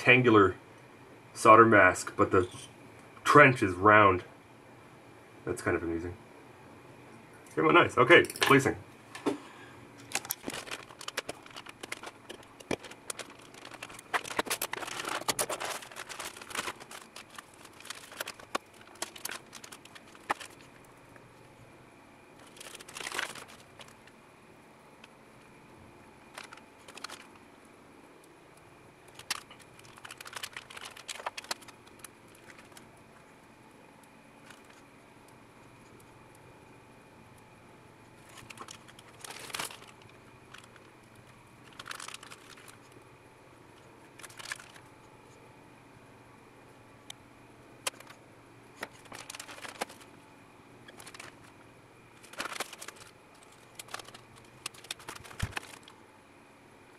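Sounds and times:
plastic bags crinkling: 0:10.0 - 0:21.2, 0:22.3 - 0:24.2, 0:26.2 - 0:27.4, 0:29.0 - 0:33.0, 0:34.4 - 0:34.9, 0:38.2 - 0:43.0, 0:43.8 - 0:45.0, 0:47.8 - 0:50.2, 0:50.8 - 0:56.0.

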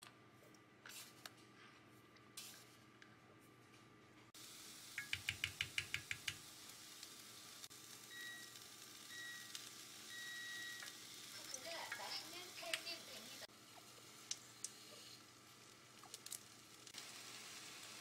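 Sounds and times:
chicken sizzling in a pan: 0:04.4 - 0:18.0
wooden spoon tapping a pan: 0:05.0 - 0:06.4
electronic hob beeps: 0:08.1 - 0:10.9.

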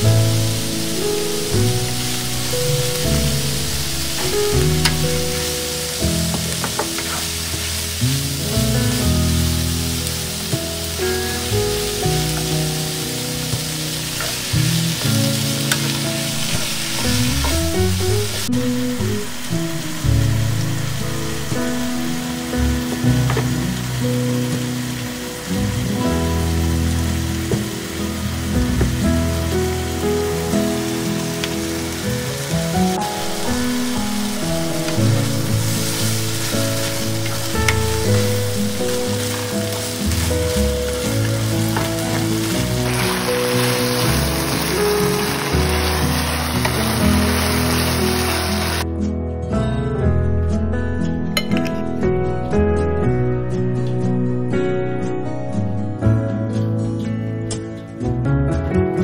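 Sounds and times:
food sizzling in a frying pan: 0:00.0 - 0:48.8
background music: 0:00.0 - 0:59.0
sauce pouring: 0:30.5 - 0:48.8
wooden spatula stirring: 0:34.9 - 0:47.6.

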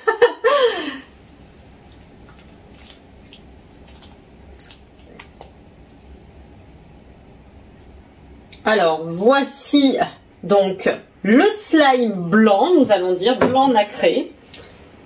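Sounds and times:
slime squelching: 0:01.2 - 0:06.8.

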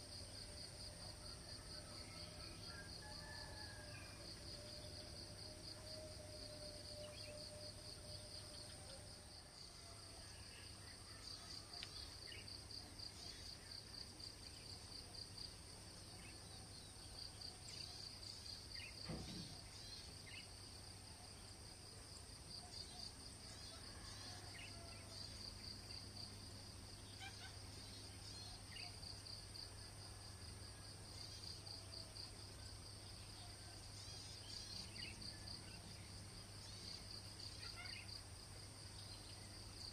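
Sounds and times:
high insect whine: 0:02.0 - 0:09.7.

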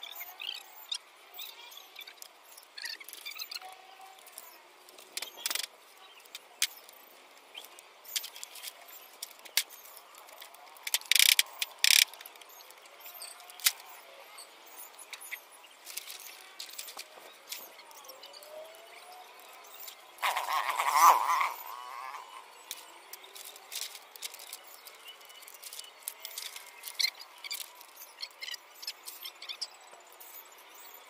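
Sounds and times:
plastic film crinkling: 0:23.2 - 0:27.9.

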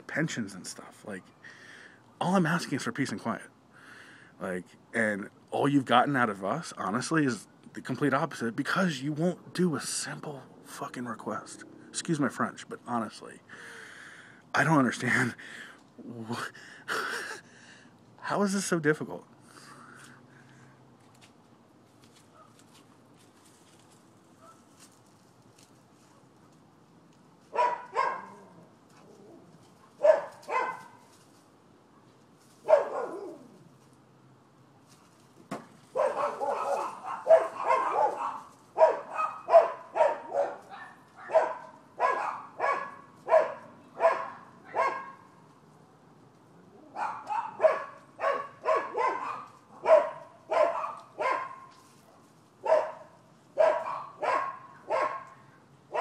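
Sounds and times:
dogs barking: 0:27.5 - 0:28.5, 0:29.8 - 0:31.1, 0:32.6 - 0:33.5, 0:35.9 - 0:45.4, 0:46.8 - 0:51.8, 0:52.6 - 0:56.0.

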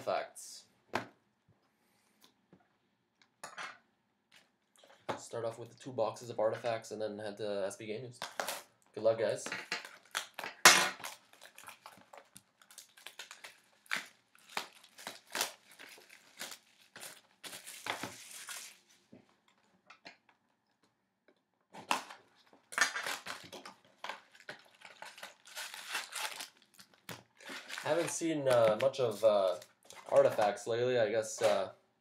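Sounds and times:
wrapper crinkling: 0:09.8 - 0:19.0, 0:21.9 - 0:30.6.

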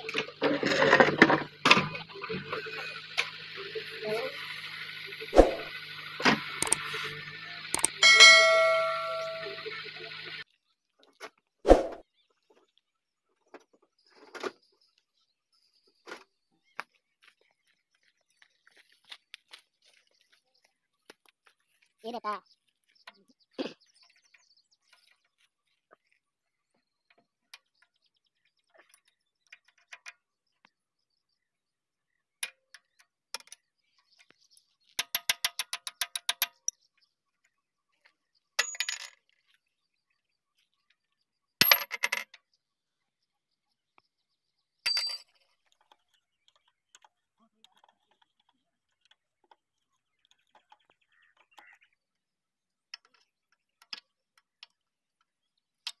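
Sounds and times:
spanners clinking on bolts: 0:06.1 - 0:10.1, 0:38.6 - 0:39.2, 0:44.9 - 0:45.5.

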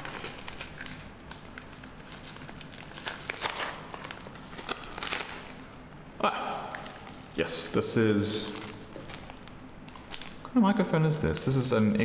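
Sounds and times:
plastic bag crinkling: 0:00.0 - 0:05.6, 0:08.2 - 0:10.5.

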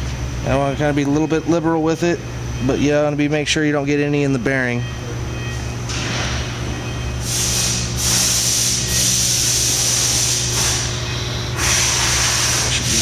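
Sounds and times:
low machine hum: 0:00.0 - 0:13.0
loud hiss: 0:07.2 - 0:11.0, 0:11.6 - 0:13.0.

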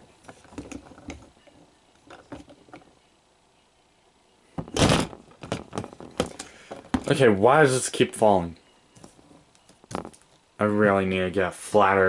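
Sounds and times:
toy falling over with clatter: 0:04.6 - 0:07.2, 0:09.7 - 0:10.4.

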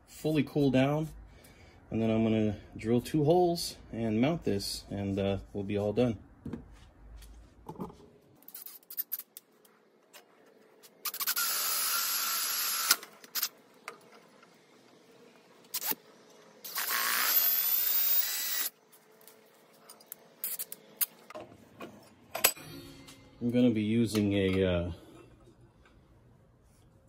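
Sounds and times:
drill boring through steel: 0:11.1 - 0:13.0, 0:16.6 - 0:18.7.

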